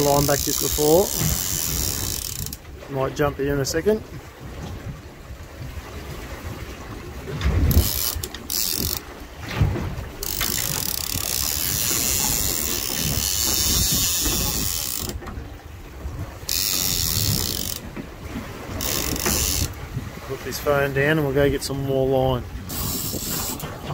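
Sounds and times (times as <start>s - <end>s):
fishing reel buzzing: 0.0s - 2.6s, 7.7s - 9.1s, 10.2s - 15.2s, 16.5s - 17.8s, 18.8s - 19.8s, 22.7s - 23.7s.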